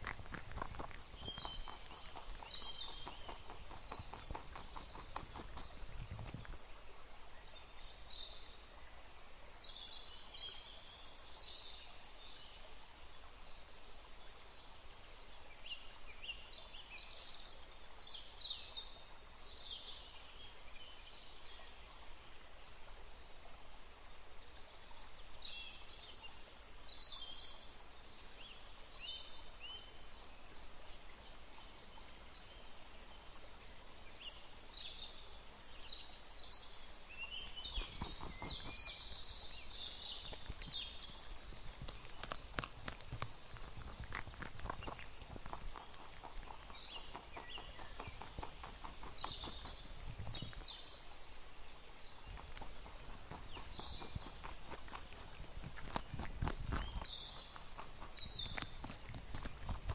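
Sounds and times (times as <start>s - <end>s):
birds chirping: 0.0s - 10.6s, 36.6s - 51.0s, 51.7s - 59.9s
low background hiss: 0.0s - 56.1s.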